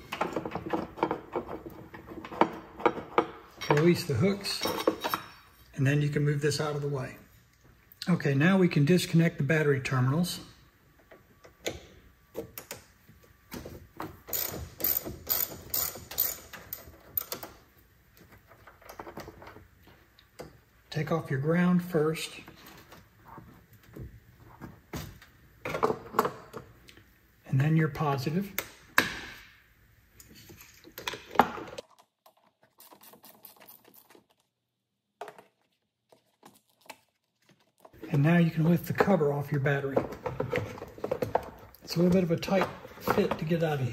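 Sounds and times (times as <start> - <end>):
ratchet wrench clicking: 14.3 - 17.3.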